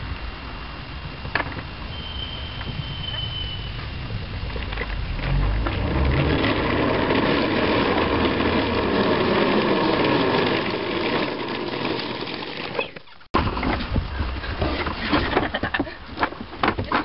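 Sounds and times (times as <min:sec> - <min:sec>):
small motorbike engine running: 0:04.0 - 0:12.1.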